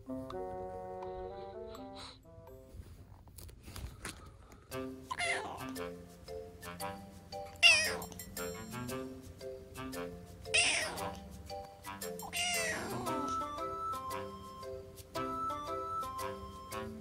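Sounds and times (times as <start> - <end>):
light background music: 0.0 - 3.1, 4.6 - 17.0
kitten meowing: 5.1 - 5.6, 7.6 - 8.1, 10.6 - 11.2, 12.3 - 13.3.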